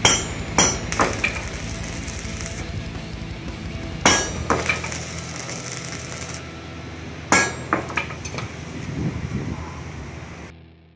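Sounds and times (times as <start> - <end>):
steel bars clanking: 0.0 - 2.7, 4.0 - 6.4, 7.3 - 8.8
steady low hum: 0.0 - 10.9.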